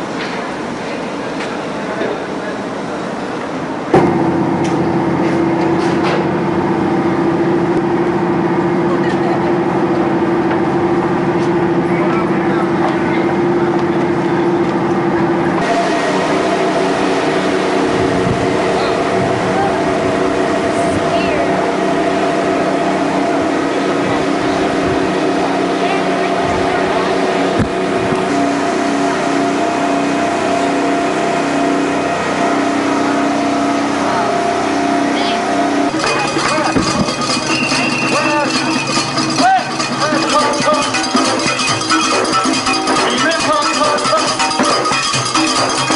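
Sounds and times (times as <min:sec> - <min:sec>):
rushing water noise: 0:00.0 - 0:45.9
ship machinery drone: 0:00.0 - 0:45.9.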